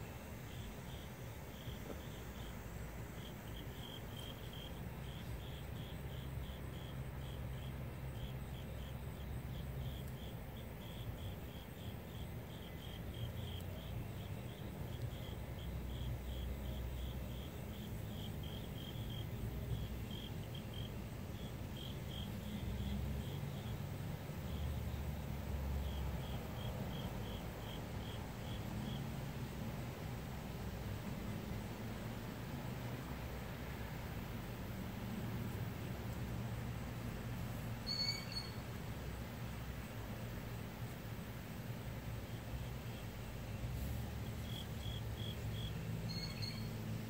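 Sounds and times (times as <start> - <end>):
insect chirping: 0.0 - 32.2, 32.9 - 47.0.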